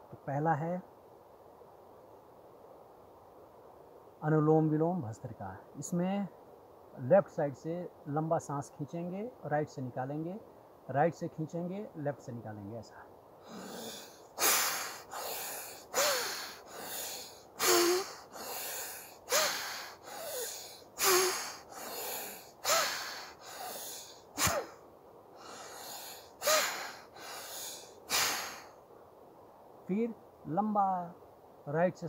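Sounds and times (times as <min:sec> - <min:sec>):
forceful nostril breathing: 0:13.4 - 0:24.7, 0:25.4 - 0:28.8.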